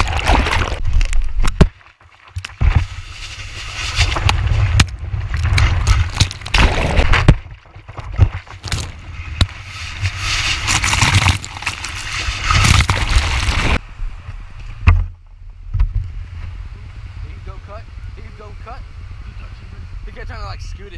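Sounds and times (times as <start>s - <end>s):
water splashing under board: 0.0s - 13.8s.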